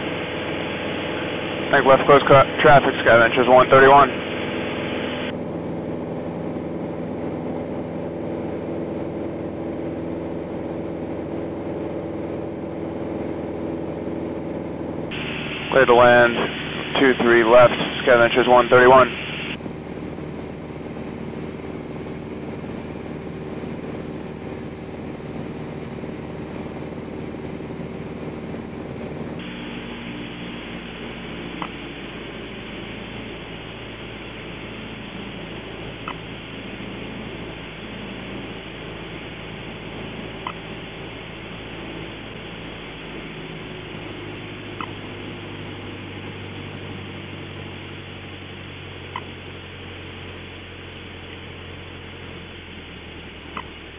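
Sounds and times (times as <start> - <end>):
aircraft engine droning: 0.0 - 53.9.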